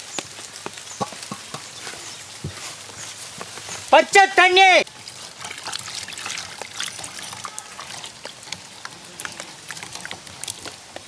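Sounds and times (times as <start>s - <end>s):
hand squelching wet paste: 5.0s - 11.0s.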